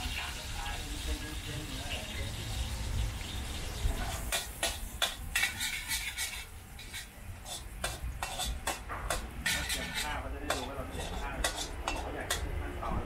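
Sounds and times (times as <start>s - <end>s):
metal spatula scraping a wok: 4.0s - 12.5s.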